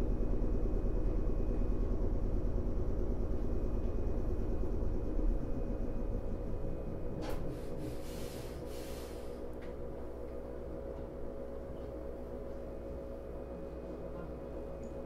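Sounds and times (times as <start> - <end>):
electrical hum: 0.0 - 15.0
train running rumble: 0.0 - 15.0
compressed air hiss: 7.6 - 9.4.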